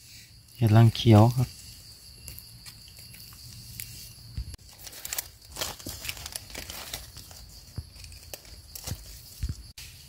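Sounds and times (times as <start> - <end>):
dry leaves rustling and crackling: 4.6 - 9.7.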